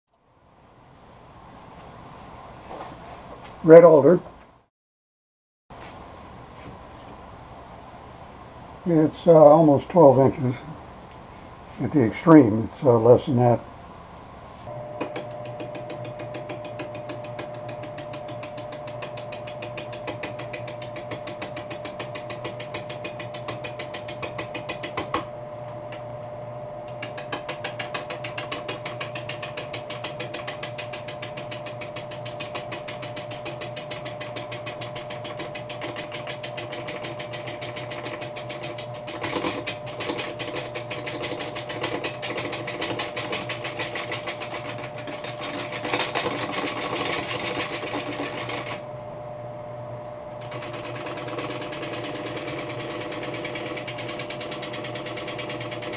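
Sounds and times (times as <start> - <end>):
lathe humming: 14.4 - 55.9.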